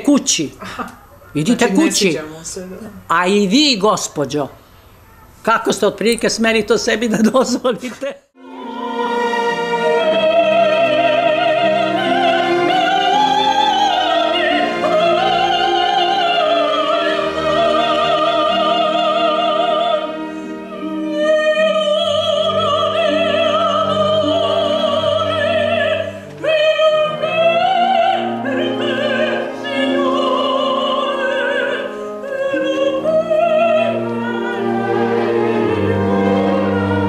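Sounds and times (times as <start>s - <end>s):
operatic soprano singing: 8.4s - 37.0s
string orchestra accompaniment: 8.4s - 37.0s.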